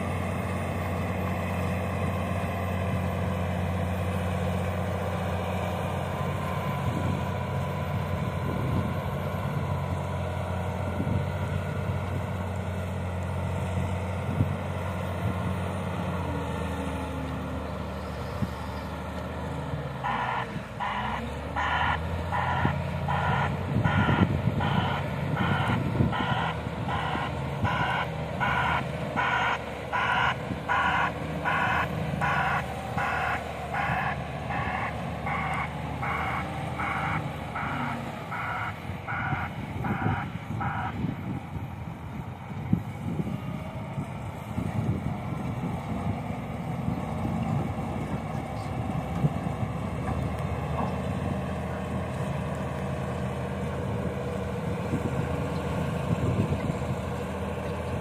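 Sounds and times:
diesel engine running: 0:00.0 - 0:58.0
reversing alarm beeping: 0:20.0 - 0:41.0.

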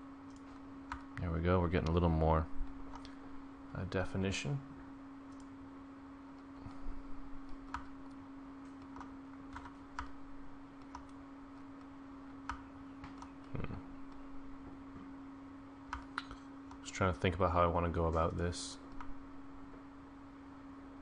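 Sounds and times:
low electrical hum: 0:00.0 - 0:21.0.

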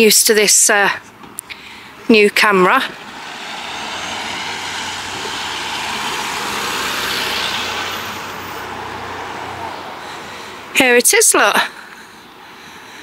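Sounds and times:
vehicle driving past: 0:02.8 - 0:10.7.

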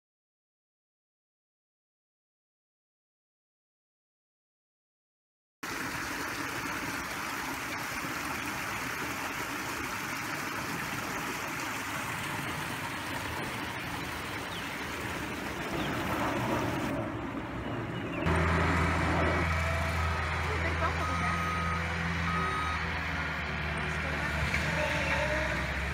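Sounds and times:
diesel engine humming: 0:05.7 - 0:25.9
steady noisy rush: 0:11.9 - 0:20.8.

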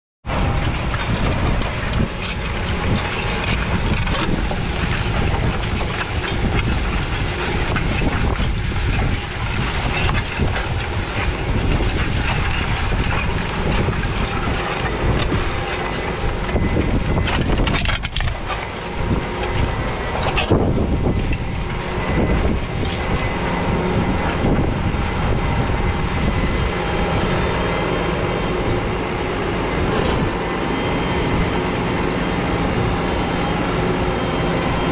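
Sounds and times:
tractor diesel engine running: 0:00.2 - 0:34.9
wind on microphone: 0:00.2 - 0:34.9
soil rushing over plough: 0:00.3 - 0:34.9.

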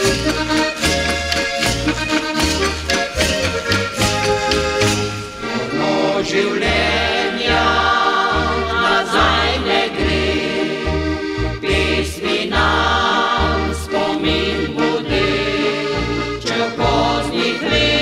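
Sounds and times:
diatonic accordions: 0:00.0 - 0:18.0
steady bass notes: 0:00.0 - 0:18.0
voices singing together: 0:05.4 - 0:18.0.

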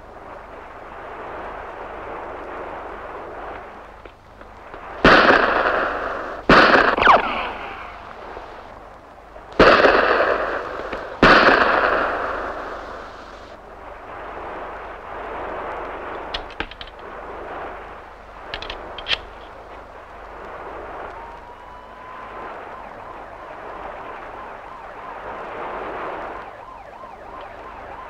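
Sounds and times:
faint clicks: 0:03.5 - 0:04.9, 0:18.4 - 0:21.6, 0:27.3 - 0:27.7
pistol shots echoing: 0:05.0 - 0:08.0, 0:09.6 - 0:12.8
falling bullet whine: 0:05.0 - 0:08.7.

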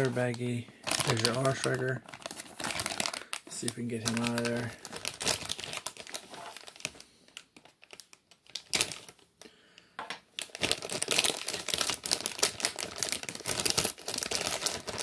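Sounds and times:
plastic bag crinkling: 0:00.0 - 0:09.6, 0:10.4 - 0:15.0.

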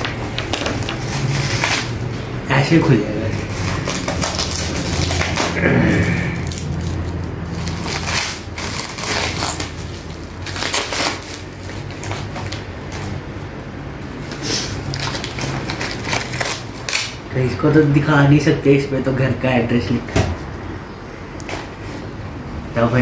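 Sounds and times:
plastic wrapping crinkling and tearing: 0:00.5 - 0:02.1, 0:03.3 - 0:13.2, 0:14.6 - 0:17.3.

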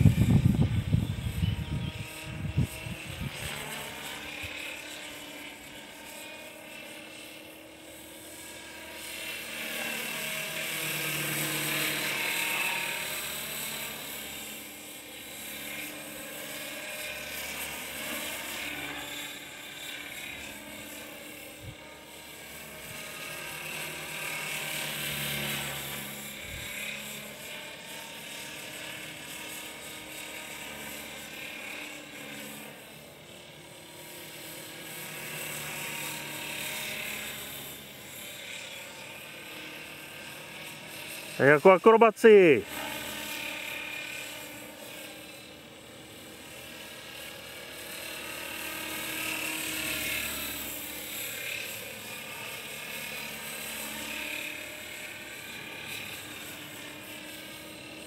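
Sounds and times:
model helicopter motor and rotor whine: 0:00.0 - 0:58.0.

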